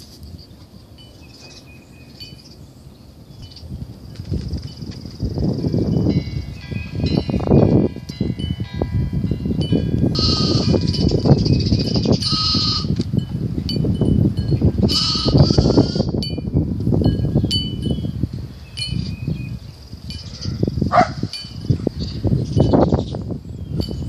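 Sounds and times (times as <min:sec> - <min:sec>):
high tinkling pings: 0:00.3 - 0:02.6, 0:04.7 - 0:23.1
lambs bleating: 0:10.2 - 0:10.8, 0:12.3 - 0:13.0, 0:15.0 - 0:16.1.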